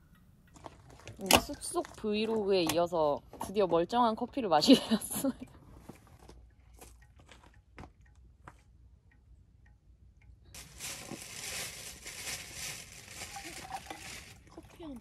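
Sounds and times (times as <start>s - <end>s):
faint ticks: 5.4s - 10.5s.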